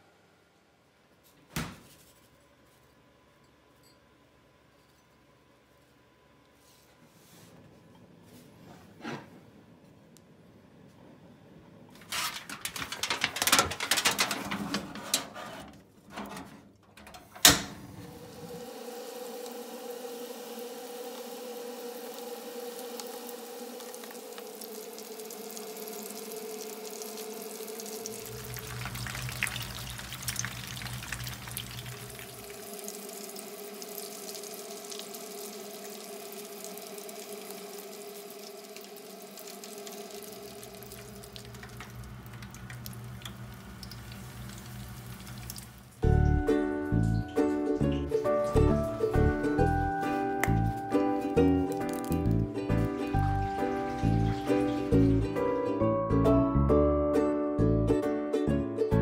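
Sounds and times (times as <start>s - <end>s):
dishes clattering: 12.0s - 16.5s
steady hum: 17.0s - 47.2s
food sizzling in oil: 18.2s - 46.1s, 48.2s - 55.6s.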